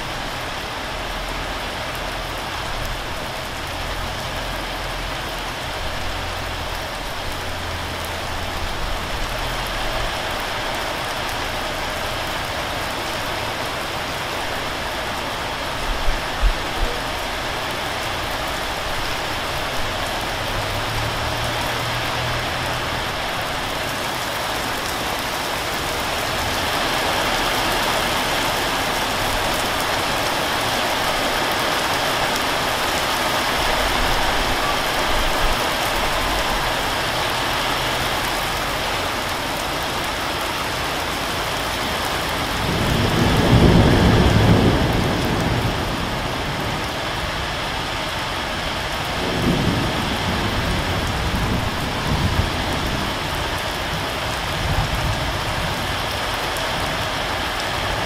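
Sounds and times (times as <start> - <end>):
heavy rain falling: 0.0 - 58.0
thunder rumble: 41.6 - 56.2.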